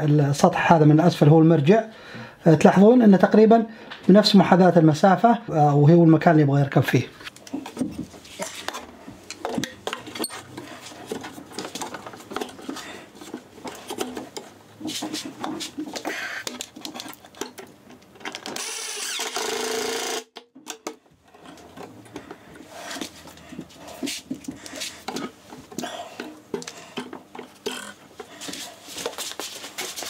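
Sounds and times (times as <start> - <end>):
cordless drill driving screw: 18.4 - 20.3.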